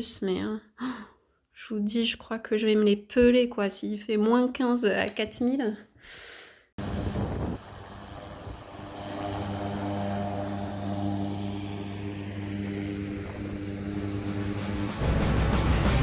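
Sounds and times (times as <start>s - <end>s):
propeller plane engine droning: 6.8s - 15.4s
music: 13.9s - 16.0s.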